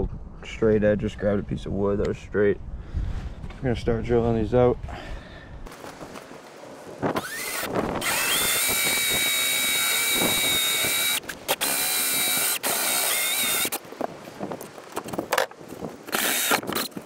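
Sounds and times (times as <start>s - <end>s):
power drill cutting wood: 7.2s - 13.8s, 16.1s - 16.9s.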